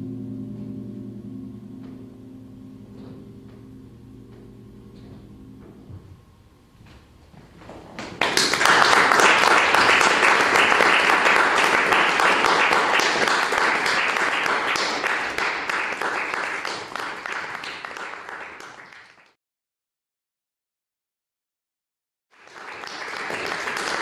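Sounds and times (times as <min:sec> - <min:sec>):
audience applauding: 0:07.7 - 0:19.4, 0:22.4 - 0:24.0.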